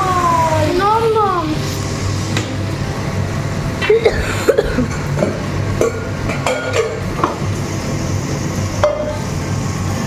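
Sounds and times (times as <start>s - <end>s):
steady low hum: 0.0s - 10.0s
metal utensils clinking: 4.9s - 7.1s.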